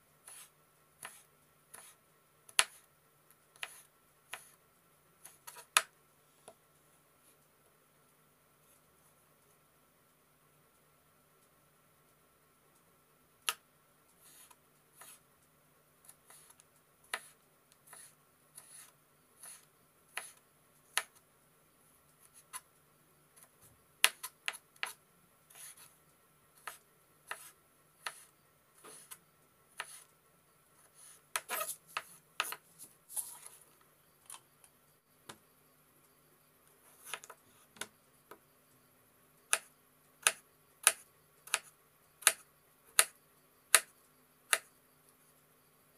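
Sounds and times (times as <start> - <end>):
knife chopping tomato: 0.3 - 2.8, 26.6 - 29.2, 39.5 - 42.4.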